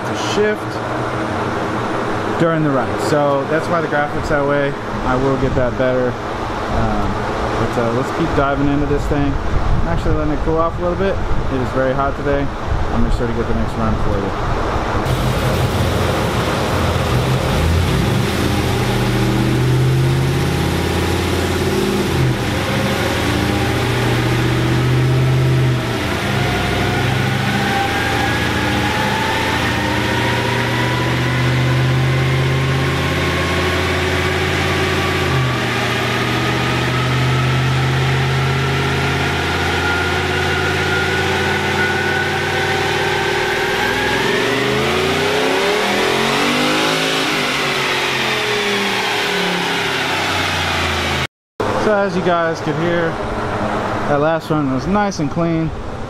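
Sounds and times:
engine revving on dyno: 14.4s - 51.9s.

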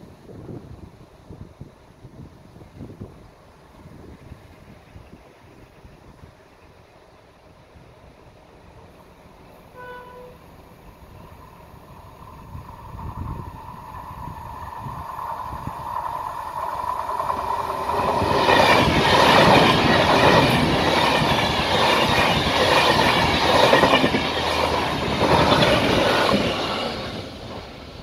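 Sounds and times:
passenger train passing at speed: 0.0s - 28.0s
train wheels on rails: 8.6s - 28.0s.

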